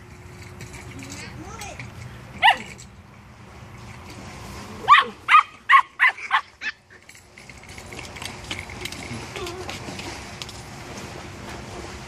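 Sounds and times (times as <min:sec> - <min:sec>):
puppies yipping: 0:04.9 - 0:07.0.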